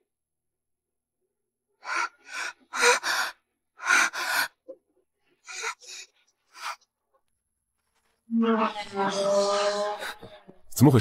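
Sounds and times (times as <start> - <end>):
woman breathing hard: 1.8 - 6.8.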